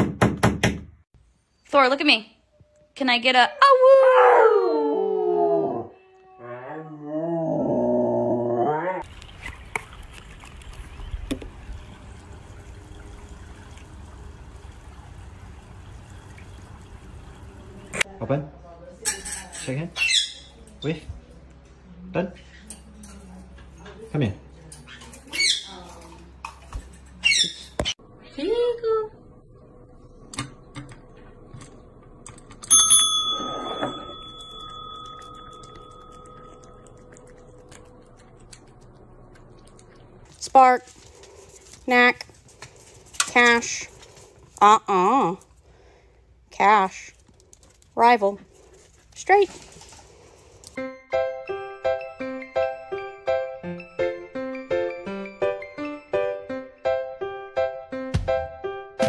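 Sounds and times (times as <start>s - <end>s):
dog howling: 3.6s - 9.0s
pool water lapping: 9.0s - 18.0s
service bell ding: 32.7s - 36.6s.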